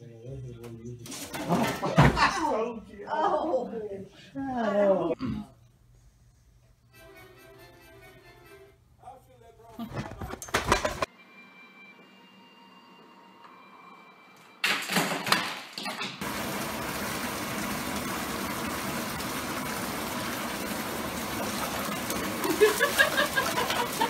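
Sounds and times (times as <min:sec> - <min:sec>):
water running into bathtub: 0:16.2 - 0:24.0
water splashing: 0:16.2 - 0:24.0.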